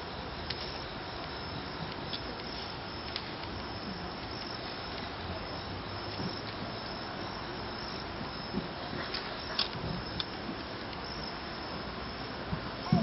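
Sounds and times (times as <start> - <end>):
background hiss: 0.0 - 13.0
crickets chirping: 0.0 - 13.0.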